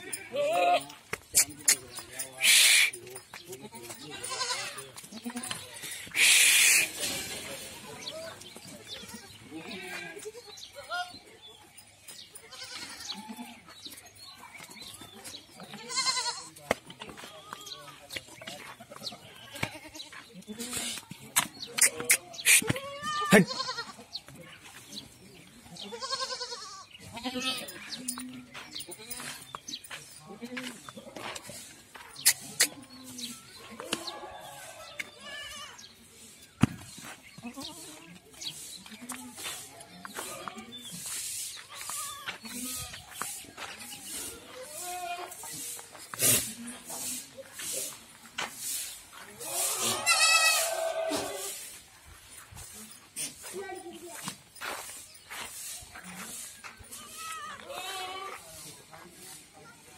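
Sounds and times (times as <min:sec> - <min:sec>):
goats bleating: 0:00.0 - 0:01.6, 0:02.4 - 0:07.3, 0:08.3 - 0:11.2, 0:12.4 - 0:13.7, 0:15.6 - 0:16.6, 0:18.6 - 0:21.0, 0:21.8 - 0:24.2, 0:25.8 - 0:29.5, 0:37.4 - 0:38.2, 0:41.6 - 0:45.5, 0:49.4 - 0:51.7, 0:56.9 - 0:58.4.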